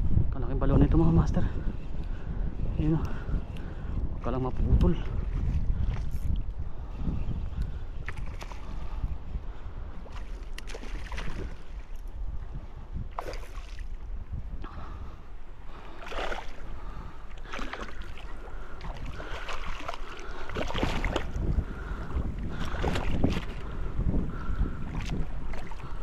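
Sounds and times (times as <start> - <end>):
wind on microphone: 0.0 - 26.0
water sloshing and splashing: 8.0 - 8.9, 10.0 - 12.2, 13.1 - 14.1, 15.7 - 26.0.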